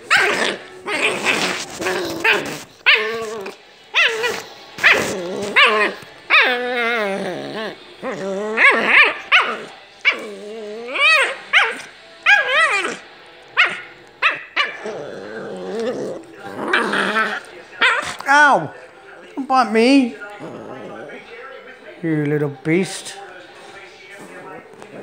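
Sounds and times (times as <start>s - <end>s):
dogs growling and barking: 0.0s - 18.6s, 20.2s - 21.3s.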